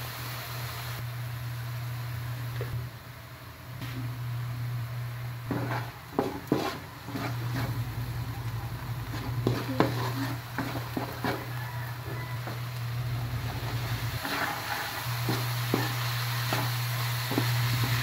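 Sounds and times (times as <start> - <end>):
frying: 0.0 - 18.0
steady low hum: 0.7 - 18.0
wooden spatula knocking on wok: 5.5 - 7.3, 9.1 - 12.7.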